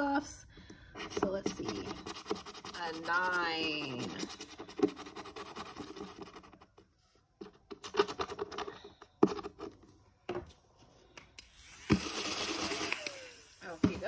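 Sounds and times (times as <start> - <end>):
scratching a scratch card: 1.0 - 6.8.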